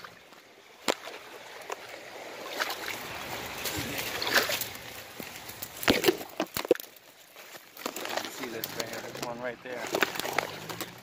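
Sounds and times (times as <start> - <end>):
leaves and brush rustling: 0.0 - 11.0
twigs crackling: 2.7 - 11.0
twigs snapping: 3.6 - 11.0.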